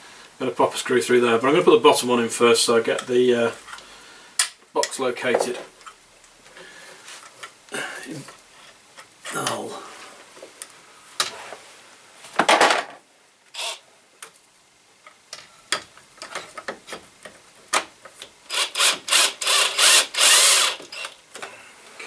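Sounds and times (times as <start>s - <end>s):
cordless drill screwing: 13.6s - 13.8s, 18.5s - 21.2s
short rasping bursts: 18.5s - 21.1s.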